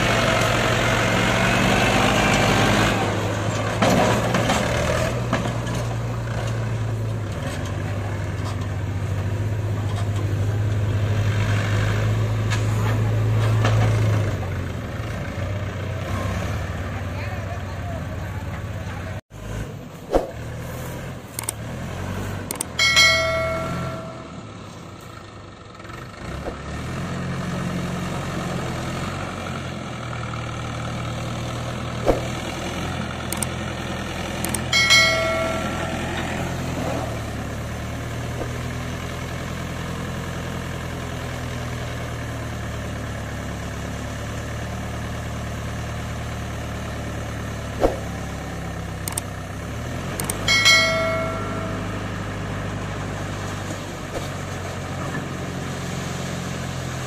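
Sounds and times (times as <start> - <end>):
tractor diesel engine running: 0.0 - 57.0
short chime: 22.8 - 24.7, 34.7 - 36.7, 50.5 - 52.5.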